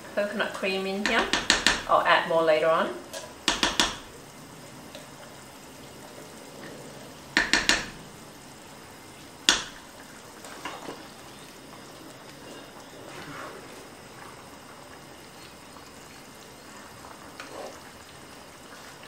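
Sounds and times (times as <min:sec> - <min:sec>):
curry simmering hiss: 0:00.0 - 0:19.0
metal spoon tapping a can: 0:01.0 - 0:01.9, 0:03.5 - 0:04.1, 0:07.4 - 0:08.0.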